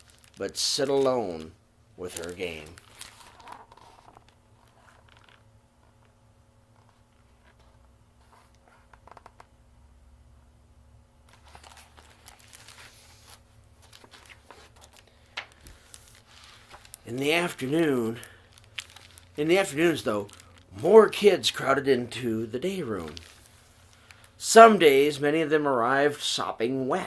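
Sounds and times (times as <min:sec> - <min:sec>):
paper rustling: 0:00.0 - 0:05.4, 0:11.3 - 0:24.3.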